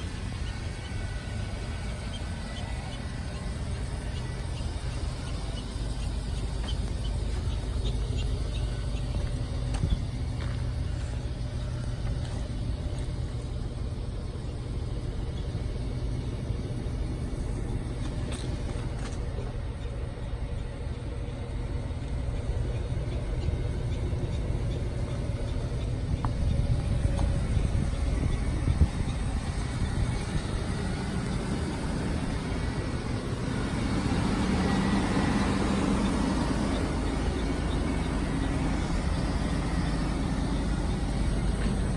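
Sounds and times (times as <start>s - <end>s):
bus engine idling: 0.0s - 41.9s.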